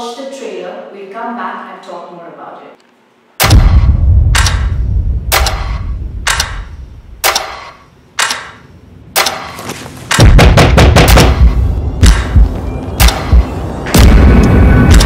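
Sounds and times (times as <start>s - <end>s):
gunshot-like cracks: 3.4s - 5.9s
heavy low boom: 3.4s - 6.3s, 10.2s - 15.0s.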